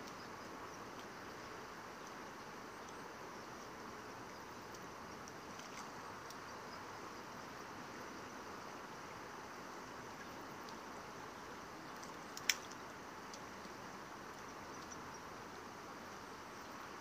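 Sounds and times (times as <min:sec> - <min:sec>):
shallow river flowing over stones: 0:00.1 - 0:17.0.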